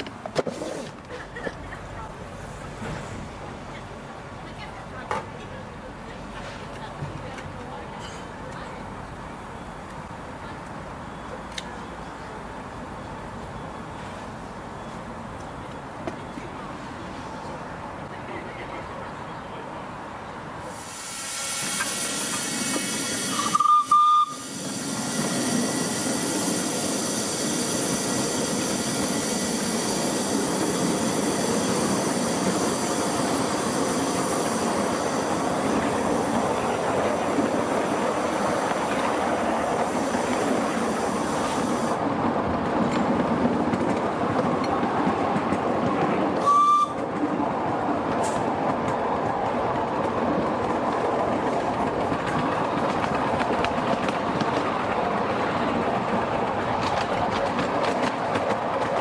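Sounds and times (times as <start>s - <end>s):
steam hissing: 20.6s - 42.0s
steam whistle blast: 20.8s - 24.6s, 46.4s - 47.0s
wheels running on rails: 21.4s - 59.0s.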